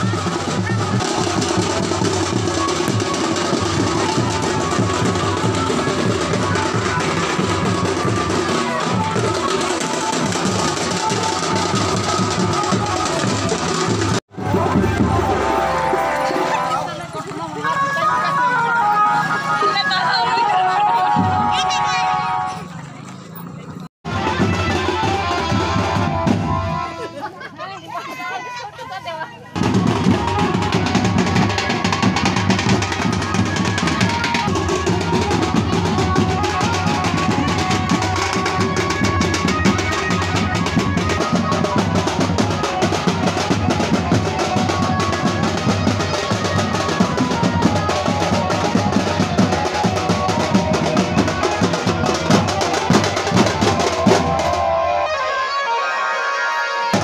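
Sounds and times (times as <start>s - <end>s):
folk drums fast rhythm: 0.0s - 22.8s, 24.0s - 57.0s
higher melodic line: 14.3s - 22.8s.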